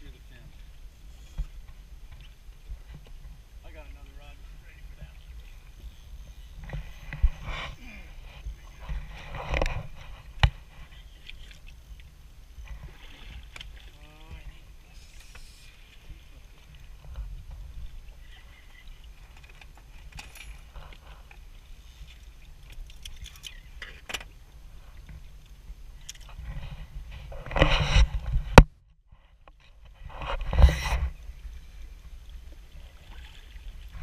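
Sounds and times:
water lapping against boat hull: 0:00.0 - 0:34.0
wind rumble on microphone: 0:04.4 - 0:11.0, 0:16.0 - 0:19.2, 0:24.4 - 0:32.9.

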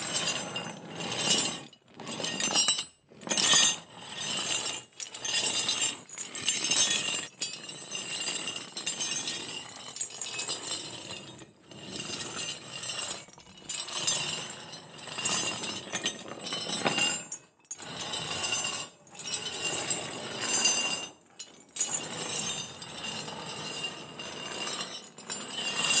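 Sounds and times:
metal chains clinking and rattling: 0:00.0 - 0:26.0.

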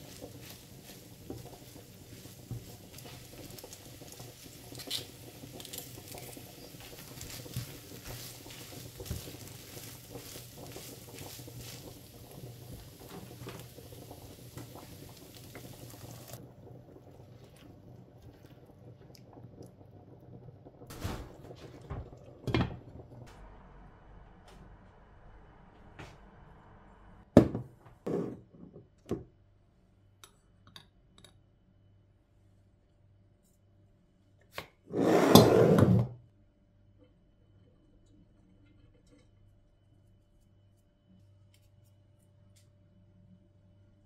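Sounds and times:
meat sizzling in a frying pan: 0:00.0 - 0:16.4.

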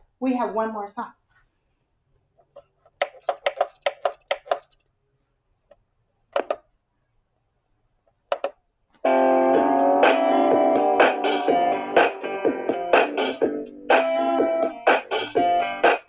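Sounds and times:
taps on a device: 0:03.0 - 0:04.6
recorded music: 0:09.0 - 0:16.0.

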